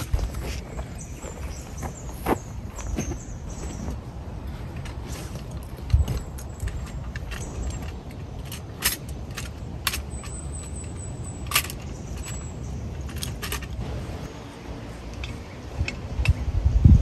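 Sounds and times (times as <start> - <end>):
steady low rumble: 0.0 - 17.0
metal clicks and clinks of camp stove: 4.8 - 13.8.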